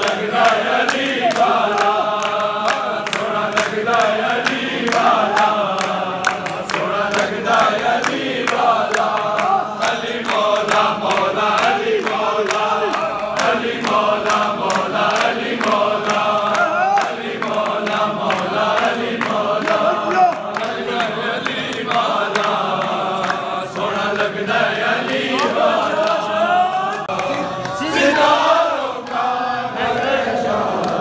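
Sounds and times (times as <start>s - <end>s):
hand claps: 0.0s - 31.0s
men chanting in unison: 0.0s - 31.0s.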